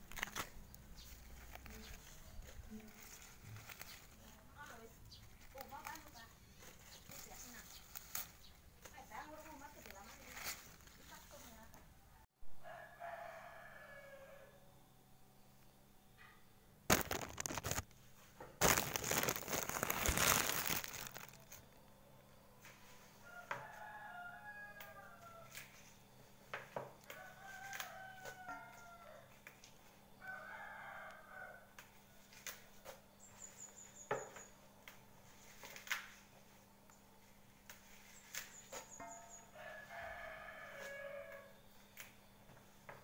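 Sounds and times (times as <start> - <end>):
leaves snapping off stems: 0.0 - 4.2, 5.4 - 8.9, 16.9 - 17.9, 18.6 - 21.6, 27.7 - 28.0
rustling and handling noise: 0.0 - 11.9, 16.9 - 21.8, 26.6 - 30.0.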